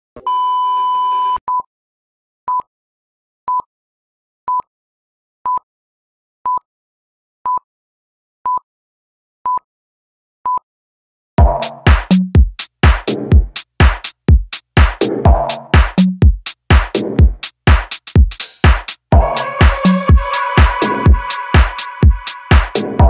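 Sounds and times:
short beeps: 0:00.2 - 0:01.7
electronic test tone: 0:19.1 - 0:22.3.

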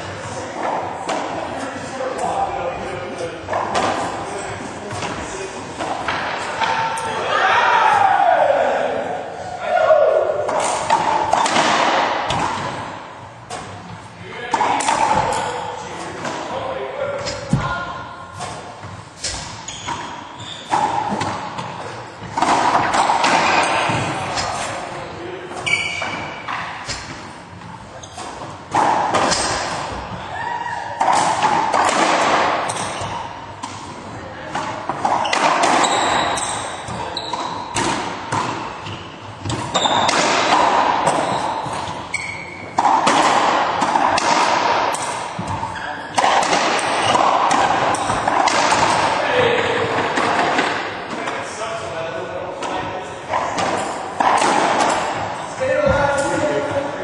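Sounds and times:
racquetball hits: 0:00.0 - 0:09.1, 0:09.8 - 0:51.6, 0:52.5 - 0:57.0
shoes squeaking on hardwood floor: 0:17.6 - 0:22.4, 0:25.5 - 0:28.7, 0:35.0 - 0:37.8, 0:38.7 - 0:40.2, 0:41.0 - 0:42.8, 0:45.4 - 0:46.2
ball smacking off racquets and walls: 0:18.4 - 0:24.8, 0:31.0 - 0:33.8, 0:34.5 - 0:51.4.

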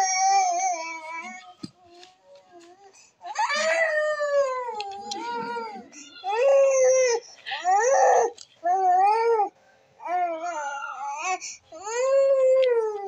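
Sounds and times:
infant crying: 0:03.2 - 0:13.0.

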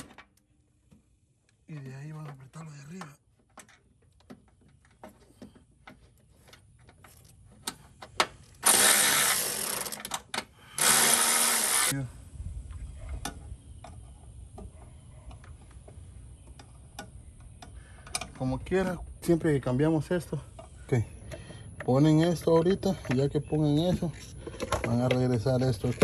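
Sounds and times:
cordless power tool bursts: 0:08.6 - 0:12.0.

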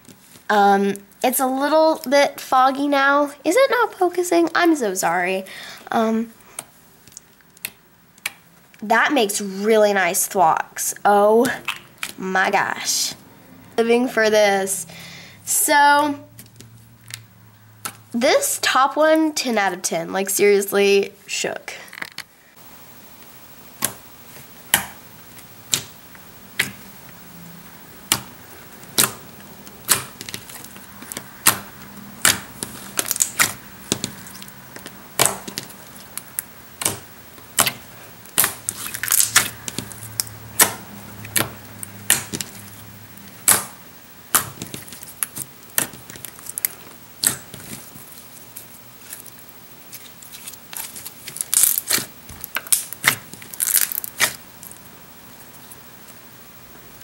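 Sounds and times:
slime clicking: 0:32.2 - 0:34.5, 0:35.2 - 0:37.8.

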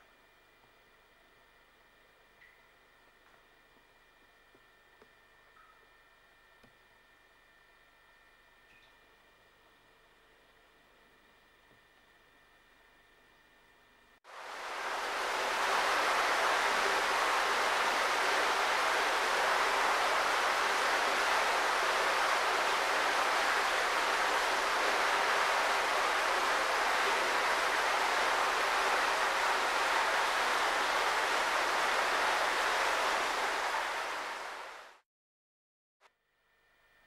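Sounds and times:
steady loud hiss: 0:14.3 - 0:35.0.

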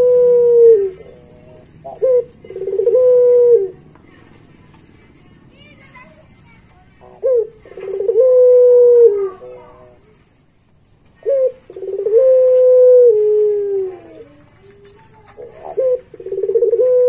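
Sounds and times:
dove cooing: 0:00.0 - 0:03.8, 0:07.0 - 0:10.0, 0:11.2 - 0:17.0.

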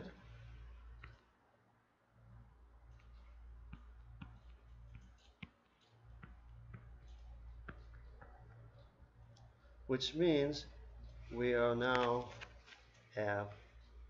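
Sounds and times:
stylus tapping on a tablet: 0:03.0 - 0:09.5.

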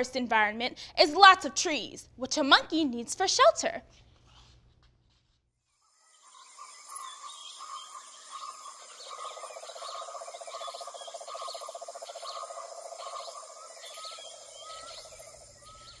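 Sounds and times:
birds chirping: 0:06.0 - 0:16.0
repeating bird call: 0:06.4 - 0:16.0.

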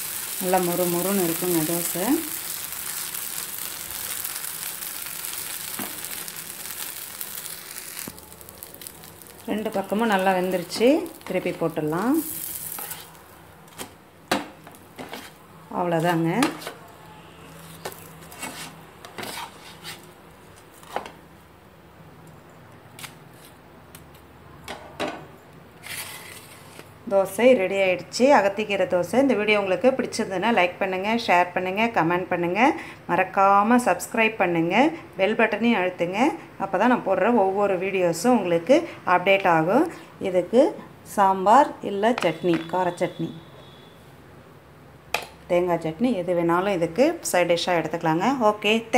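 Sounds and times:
dosa sizzling in oil: 0:00.0 - 0:14.0, 0:14.6 - 0:21.0.

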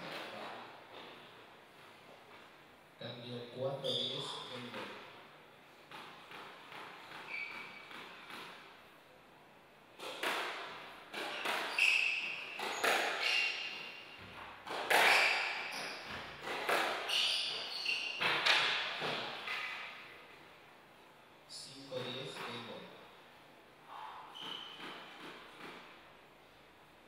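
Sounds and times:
shoes squeaking on wooden floor: 0:06.6 - 0:08.3, 0:11.2 - 0:19.8, 0:24.3 - 0:25.8
squash ball cracking off walls: 0:10.0 - 0:17.2, 0:18.2 - 0:20.0.

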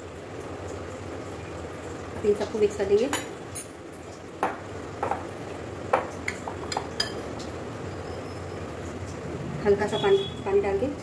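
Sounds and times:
metal spoon clinking against glass bowl: 0:06.6 - 0:07.2.

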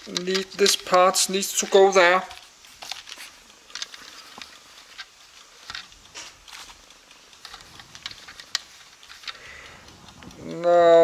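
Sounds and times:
plastic bricks clicking: 0:00.0 - 0:11.0.

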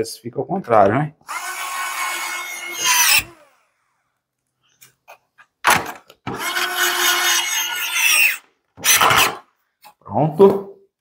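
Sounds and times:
cordless screwdriver driving screws: 0:06.3 - 0:09.4.

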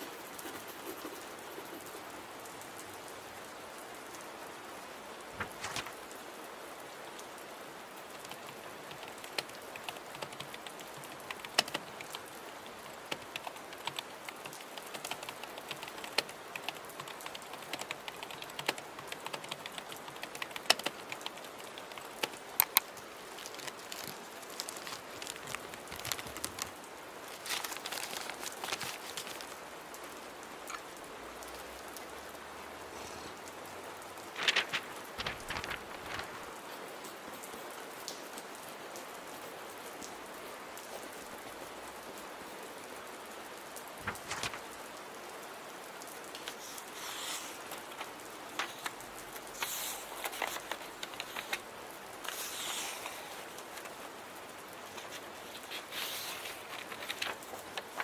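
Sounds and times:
steady rain: 0:00.0 - 0:58.0
keyboard keystrokes: 0:08.9 - 0:12.2, 0:13.1 - 0:22.9.

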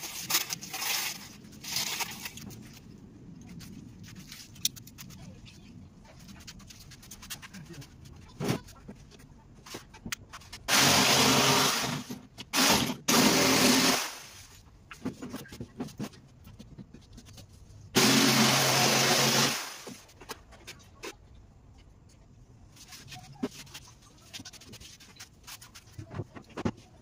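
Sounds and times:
electric power tool on plywood: 0:10.7 - 0:14.2, 0:18.0 - 0:19.8.

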